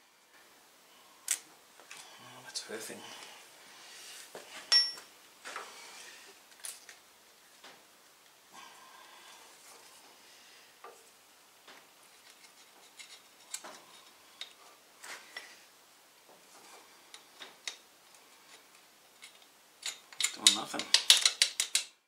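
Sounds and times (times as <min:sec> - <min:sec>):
tools and cables clicking: 0:19.1 - 0:22.0.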